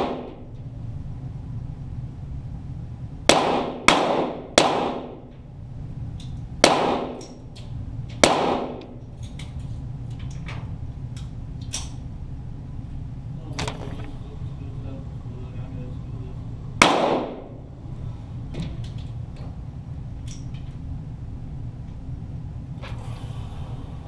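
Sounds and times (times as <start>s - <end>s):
pistol shots ringing: 3.3s - 5.2s, 6.6s - 7.2s, 8.2s - 8.8s, 16.8s - 17.6s.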